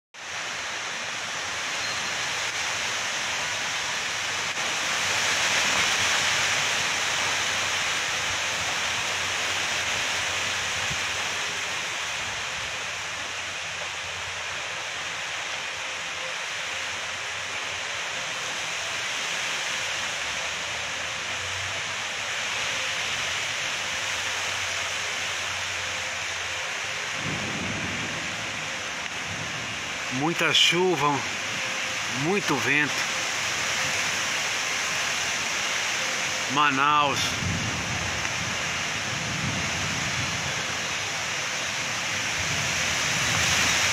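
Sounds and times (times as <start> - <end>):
heavy rain on foliage: 0.2 - 43.9.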